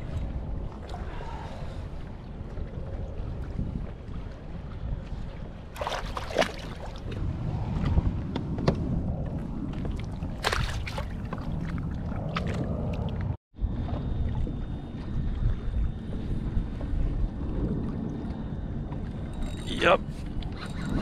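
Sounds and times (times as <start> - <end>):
water sloshing against kayak: 0.0 - 21.0
wind rumbling on microphone: 0.0 - 21.0
sharp splashes: 5.8 - 7.0, 10.4 - 11.4.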